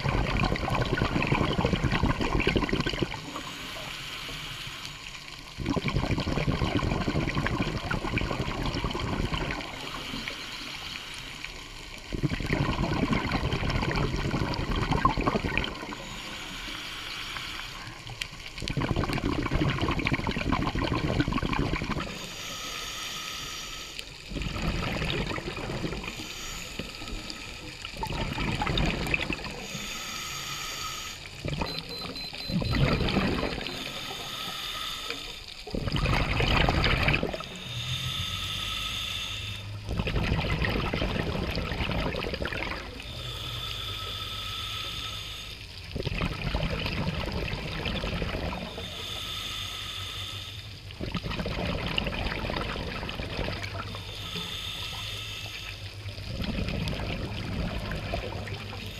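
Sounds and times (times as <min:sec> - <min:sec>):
exhaled bubbles rushing: 0:00.0 - 0:03.5, 0:05.5 - 0:10.4, 0:12.0 - 0:16.2, 0:17.8 - 0:22.2, 0:24.3 - 0:29.7, 0:31.4 - 0:34.0, 0:35.6 - 0:37.6, 0:39.6 - 0:43.1, 0:45.8 - 0:48.8, 0:50.9 - 0:54.1, 0:56.1 - 0:58.9
regulator inhaling hiss: 0:03.2 - 0:05.6, 0:09.6 - 0:12.1, 0:15.8 - 0:18.5, 0:22.0 - 0:24.3, 0:25.3 - 0:28.0, 0:29.2 - 0:31.4, 0:33.6 - 0:35.7, 0:37.3 - 0:39.8, 0:42.8 - 0:45.9, 0:48.5 - 0:51.0, 0:53.8 - 0:56.3, 0:58.2 - 0:58.9.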